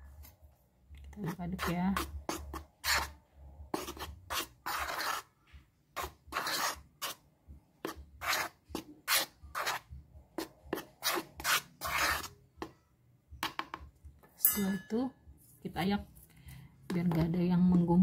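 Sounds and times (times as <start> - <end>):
metal spoon scraping plastic bowl: 1.2 - 5.3, 6.0 - 7.2, 7.8 - 12.4.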